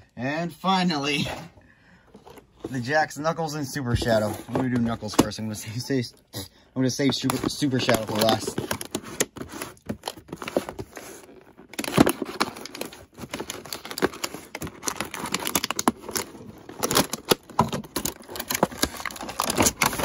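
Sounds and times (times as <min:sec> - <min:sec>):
plastic crinkling: 0:06.9 - 0:20.0.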